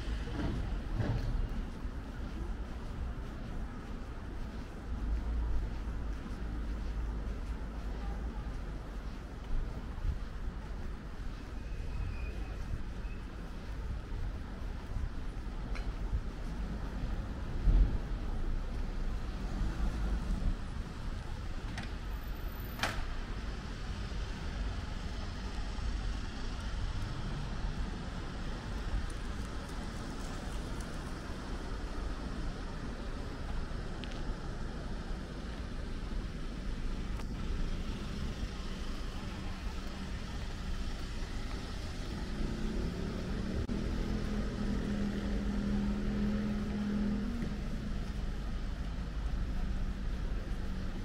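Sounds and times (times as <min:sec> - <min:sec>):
street traffic noise: 0:00.0 - 0:51.0
vehicle engine hum: 0:00.0 - 0:51.0
passing cars rumbling: 0:12.3 - 0:51.0.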